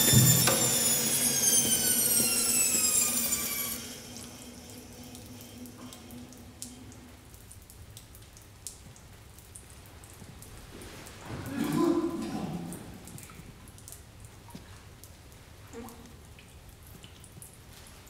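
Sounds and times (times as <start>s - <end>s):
band saw whine winding down: 0.0s - 7.1s
low hum: 0.0s - 7.8s.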